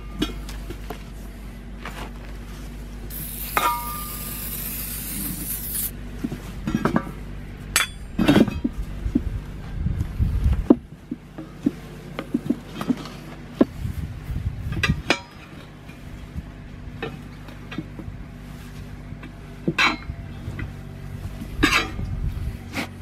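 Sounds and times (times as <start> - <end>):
tools clinking against steel wheel rim: 3.2 - 5.9, 7.7 - 8.7, 21.6 - 22.1.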